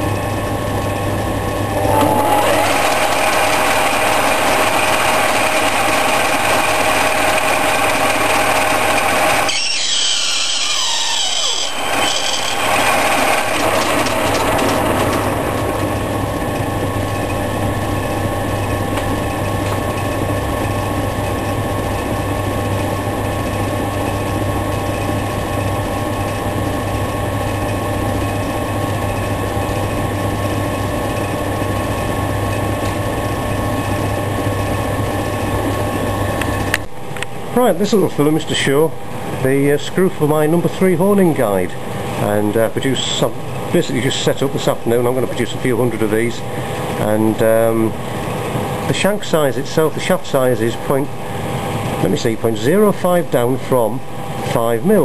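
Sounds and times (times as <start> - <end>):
lathe running with steady hum: 0.0 - 55.0
higher changing machine noise: 1.3 - 18.9.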